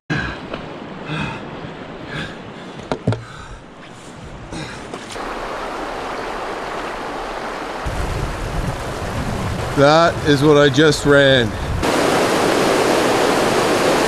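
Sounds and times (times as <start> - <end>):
river water rushing over rapids: 5.2 - 14.0.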